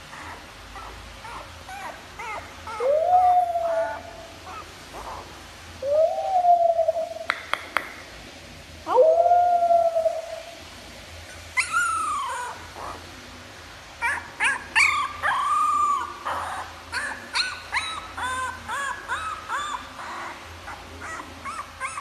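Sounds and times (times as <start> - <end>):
dog howling and whining: 0.0 - 4.7, 11.6 - 13.0, 14.0 - 22.0.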